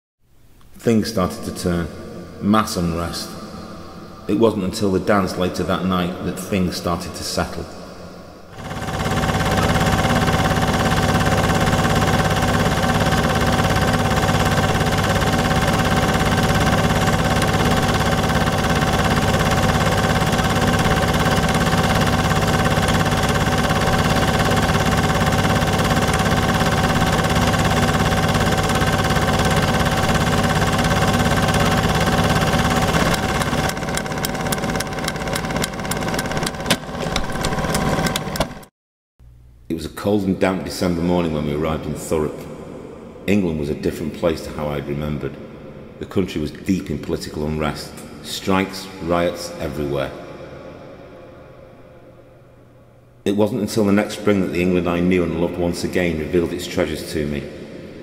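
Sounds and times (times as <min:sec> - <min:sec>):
film projector whirring: 0:08.5 - 0:38.7.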